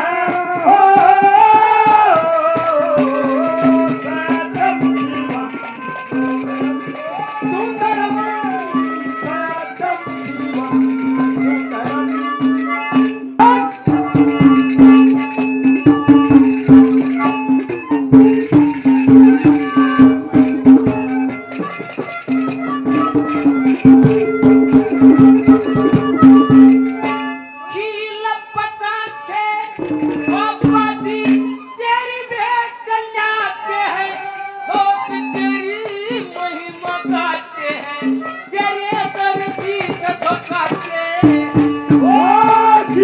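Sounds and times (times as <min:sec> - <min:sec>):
hand drum beats: 0:00.0 - 0:27.5, 0:29.8 - 0:31.6, 0:34.7 - 0:43.0
jingling rattle percussion: 0:01.8 - 0:27.4
droning melody line: 0:07.5 - 0:27.8.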